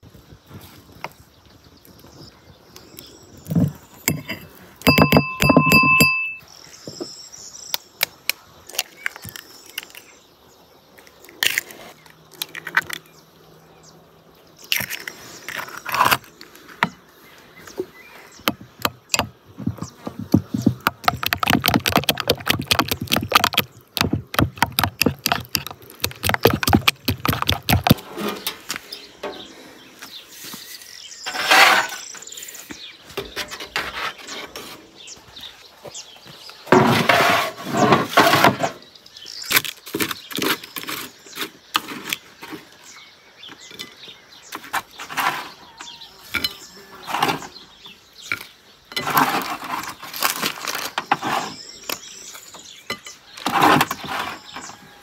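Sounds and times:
utensils knocking and scraping: 0:03.5 - 0:06.4, 0:18.5 - 0:29.5
spoon beating sauce in bowl: 0:20.9 - 0:28.0
spatula scraping metal tray: 0:27.9 - 0:29.5, 0:31.2 - 0:32.2.

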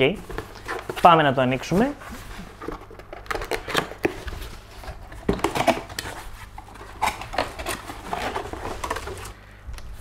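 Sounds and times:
cardboard box being opened: 0:02.0 - 0:09.3.

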